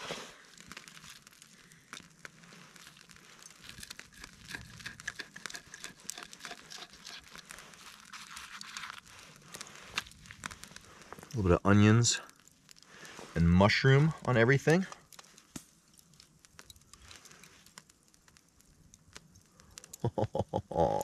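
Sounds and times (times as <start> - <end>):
knife crunching crispy fish skin: 2.8 - 10.8.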